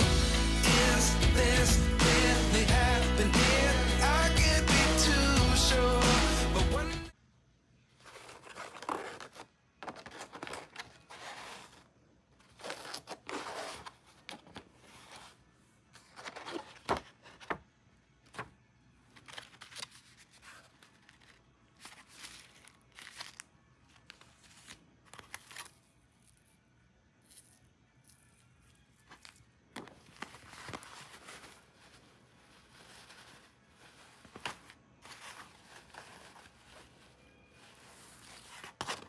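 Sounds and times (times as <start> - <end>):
packaging tearing and crinkling: 19.2 - 26.4.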